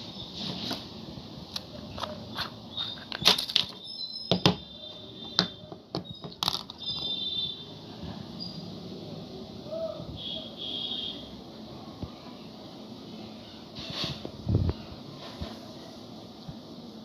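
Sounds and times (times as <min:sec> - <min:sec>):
plastic jars clicking and tapping: 0:05.3 - 0:07.1.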